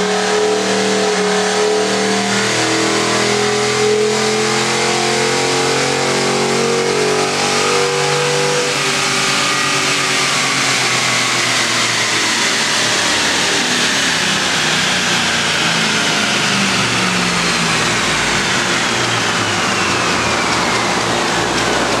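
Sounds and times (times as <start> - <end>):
drivetrain whine falling in pitch: 0.0 - 22.0
loud rushing noise: 8.8 - 22.0.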